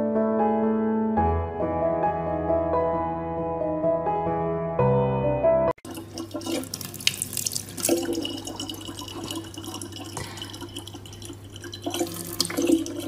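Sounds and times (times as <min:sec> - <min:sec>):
tap water pouring into plastic bottle: 0:05.8 - 0:13.0.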